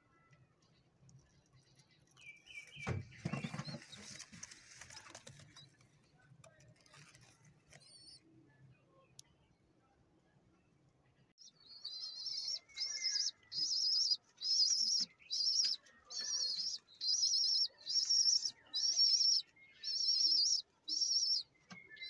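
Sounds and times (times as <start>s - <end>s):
high-pitched warbling bird chirps: 11.6s - 22.0s.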